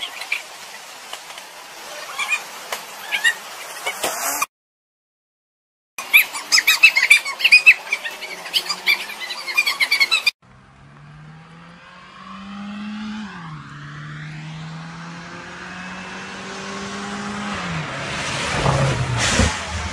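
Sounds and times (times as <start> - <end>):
rush of noise: 1.5 - 4.5, 10.6 - 19.9
off-road vehicle engine accelerating: 10.4 - 19.9.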